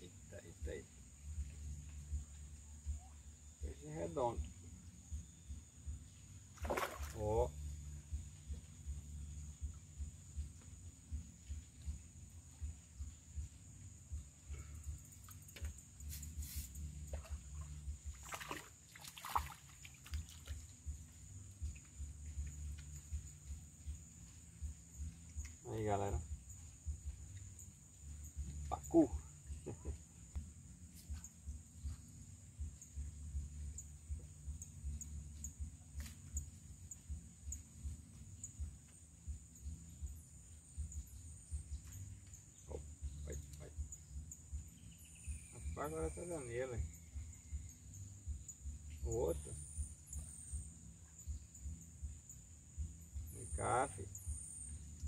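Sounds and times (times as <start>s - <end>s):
insect drone: 0.0s - 55.0s
short insect chirp: 0.0s - 55.0s
fish splashing in water: 6.6s - 7.2s, 17.1s - 20.7s.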